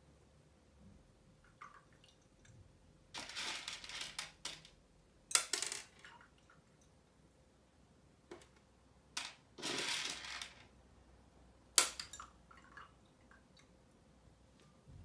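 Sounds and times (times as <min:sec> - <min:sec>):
kernels rattling: 0:03.2 - 0:06.0, 0:09.2 - 0:10.7.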